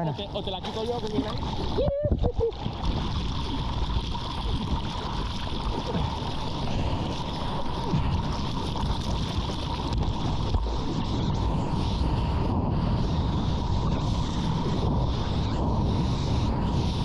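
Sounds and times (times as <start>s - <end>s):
sea water splashing and gurgling: 0.0s - 17.0s.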